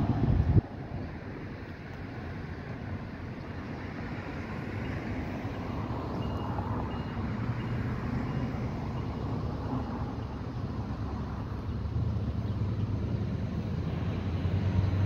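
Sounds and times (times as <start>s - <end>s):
railroad crossing bell dinging: 4.2s - 10.7s.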